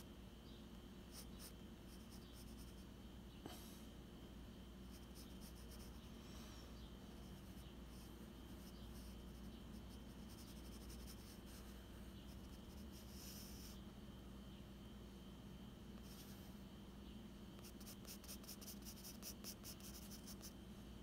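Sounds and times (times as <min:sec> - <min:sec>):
pencil scratching on paper: 0:01.1 - 0:02.8, 0:04.9 - 0:06.1, 0:07.1 - 0:13.8, 0:17.6 - 0:20.6.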